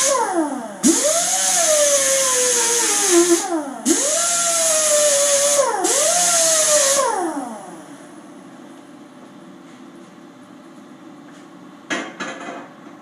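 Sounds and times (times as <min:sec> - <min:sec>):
grinder whining: 0:00.0 - 0:07.6.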